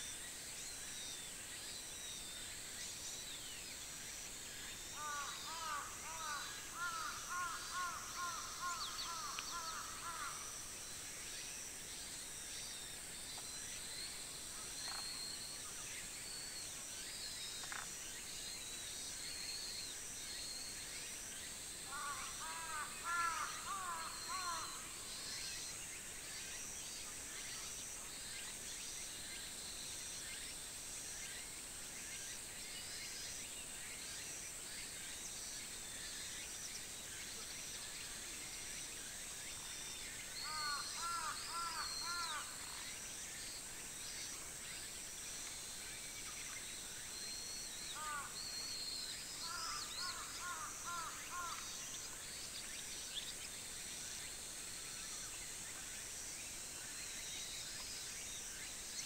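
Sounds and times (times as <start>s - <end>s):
crows cawing: 5.0s - 10.5s, 21.9s - 24.8s, 40.5s - 42.5s, 49.4s - 51.7s
high-pitched insect drone: 38.8s - 45.0s.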